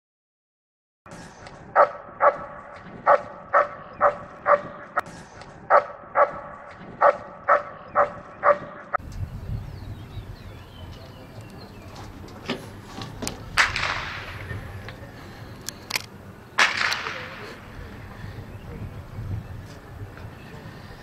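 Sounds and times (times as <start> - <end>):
low outdoor rumble: 1.4 - 21.0
dog barking: 1.8 - 4.8, 5.7 - 9.0.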